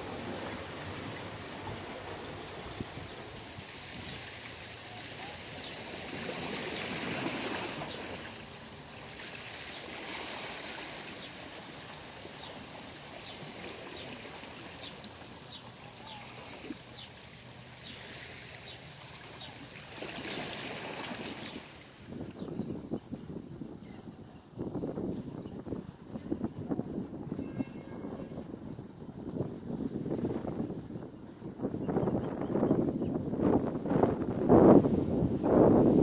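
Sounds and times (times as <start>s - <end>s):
wind noise on microphone: 20.0s - 36.0s.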